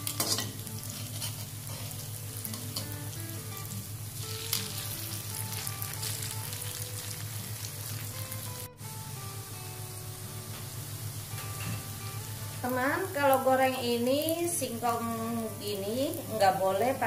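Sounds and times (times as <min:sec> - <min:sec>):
fritters sizzling in oil: 0:00.0 - 0:17.0
metal tongs scraping and tapping: 0:00.1 - 0:01.8.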